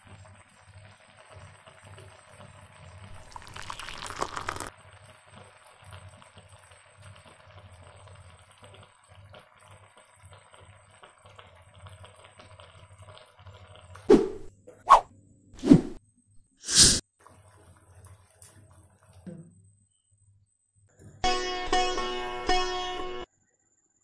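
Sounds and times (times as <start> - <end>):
gravy bubbling in a pan: 0.0 - 14.4, 17.1 - 19.3.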